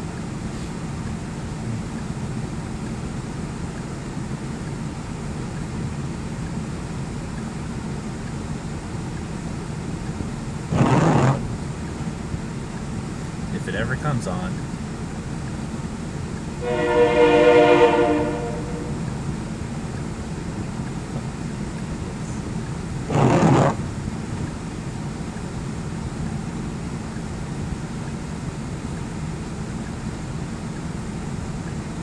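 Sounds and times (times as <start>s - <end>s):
traffic idling hum: 0.0s - 32.0s
vehicle horn: 16.6s - 19.2s.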